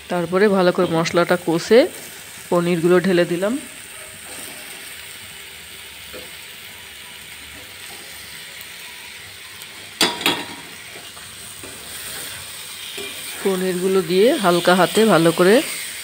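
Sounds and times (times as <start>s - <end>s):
paste sizzling in a pan: 0.0s - 16.0s
metal clanks: 10.0s - 10.7s.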